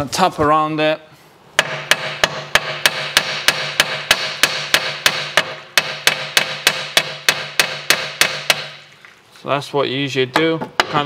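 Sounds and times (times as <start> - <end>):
hammer tapping on metal: 1.6 - 8.8.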